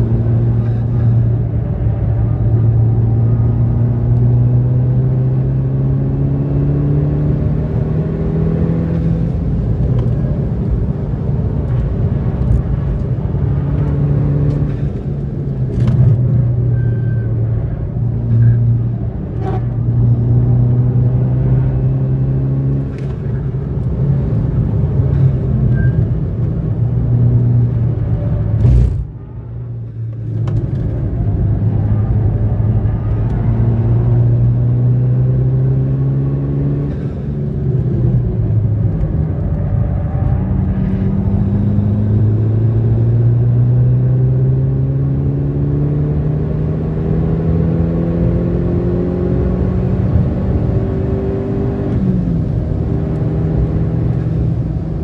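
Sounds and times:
car engine revving: 30.7 - 55.0.

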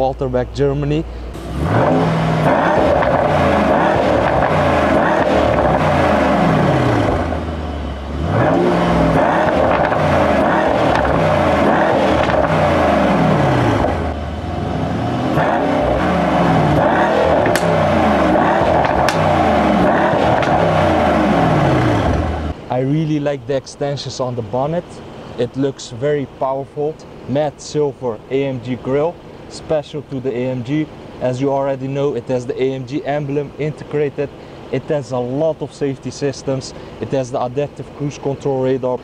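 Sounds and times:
car engine revving: 1.3 - 22.6.

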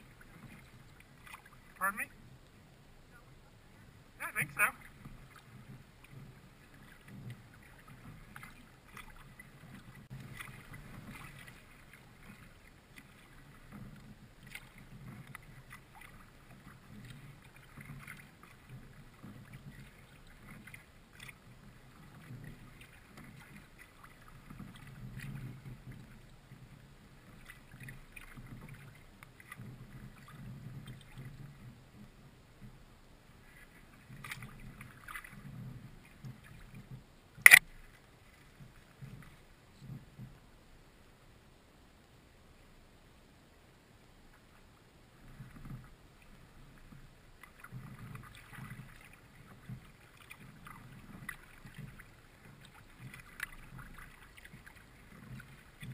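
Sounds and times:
water splashes and drips: 0.0 - 2.6, 4.2 - 32.1, 33.4 - 39.5, 45.2 - 55.9
paddle strokes in water: 0.0 - 55.9.

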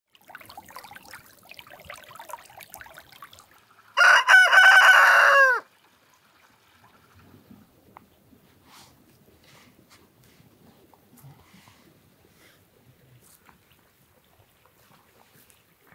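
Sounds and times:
faint trickling stream: 0.1 - 15.9
rooster crowing: 4.0 - 5.7.

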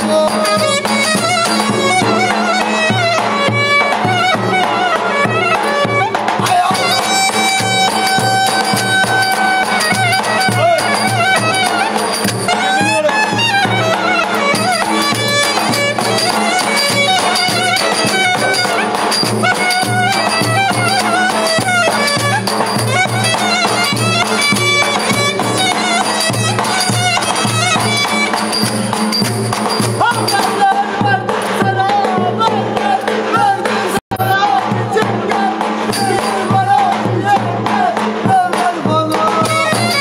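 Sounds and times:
ornamented clarinet melody: 0.5 - 29.0.

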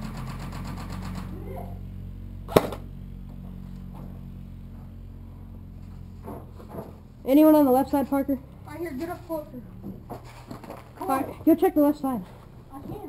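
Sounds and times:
airsoft gun firing: 0.0 - 1.4, 2.5 - 2.9
low steady hum: 0.0 - 13.0.

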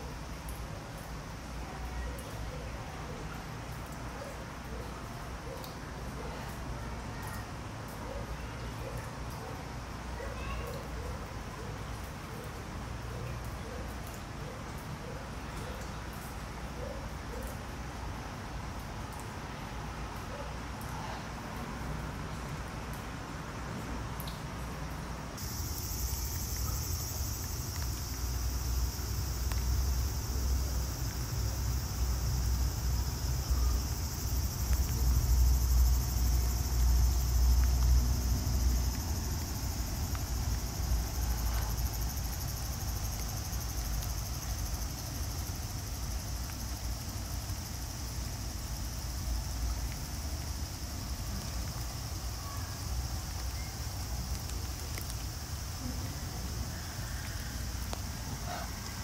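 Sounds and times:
insects droning: 25.1 - 59.0.

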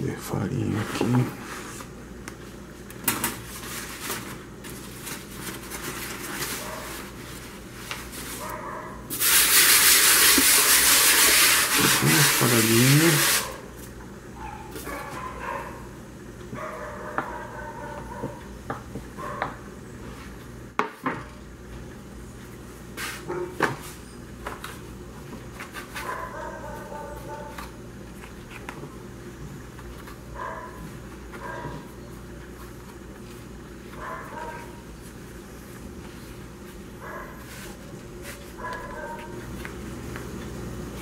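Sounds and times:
loud steady hiss: 9.1 - 13.6.

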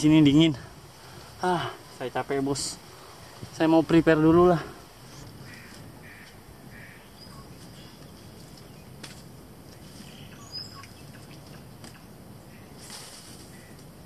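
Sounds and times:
low background rush: 0.0 - 14.0
faint bird calls: 4.6 - 9.1, 9.7 - 14.0.

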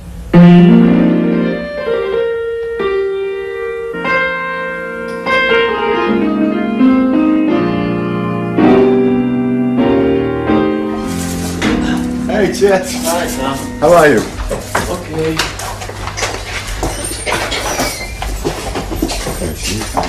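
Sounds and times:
solo piano slow chords: 0.0 - 15.3.

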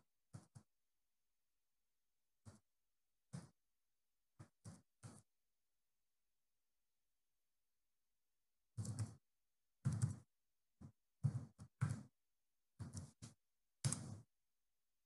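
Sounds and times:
computer keyboard typing: 8.8 - 9.2, 9.9 - 10.3.

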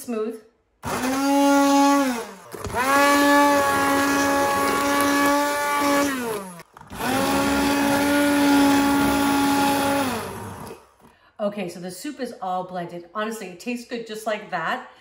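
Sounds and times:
immersion blender motor whine: 0.8 - 11.1.

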